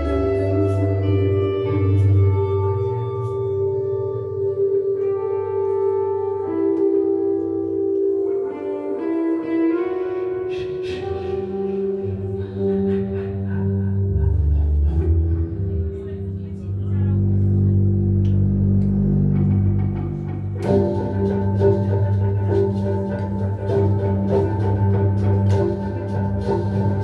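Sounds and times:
ambient drone music: 0.0s - 27.0s
plucked string notes: 6.0s - 27.0s
low bass note: 12.0s - 27.0s.

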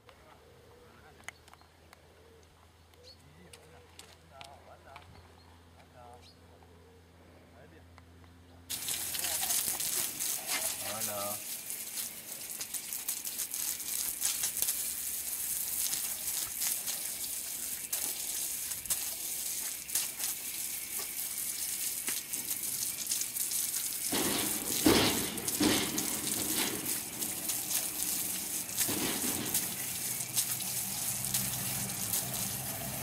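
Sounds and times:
hose water spraying and splashing: 8.7s - 33.0s.

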